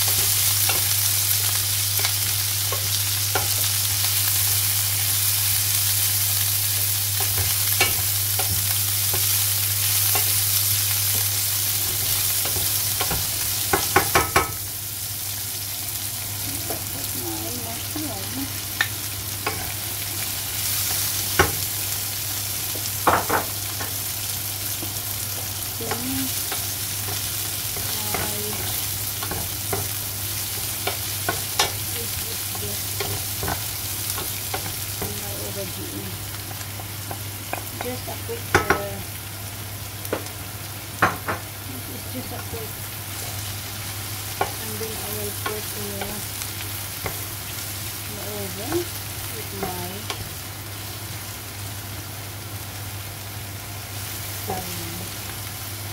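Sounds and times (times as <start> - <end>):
vegetables sizzling in oil: 0.0 - 55.9
spatula knocking against pan: 12.5 - 14.6, 38.5 - 38.8.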